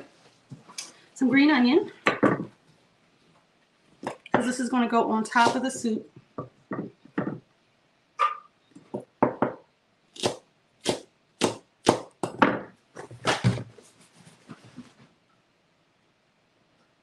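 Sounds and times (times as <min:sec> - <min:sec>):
knife chopping on wooden board: 0:10.2 - 0:12.7.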